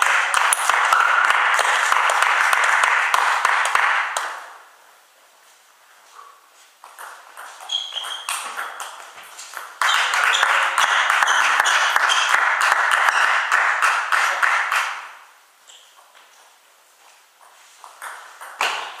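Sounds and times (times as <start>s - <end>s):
loud clapping: 0.0s - 4.6s, 9.7s - 15.2s
shoe squeaks on floor: 7.4s - 12.4s, 15.7s - 16.5s.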